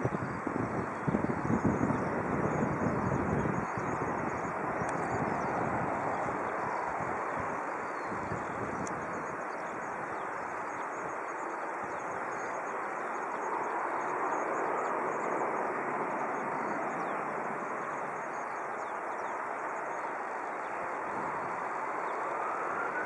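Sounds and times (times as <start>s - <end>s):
distant jet engines running: 0.0s - 23.0s.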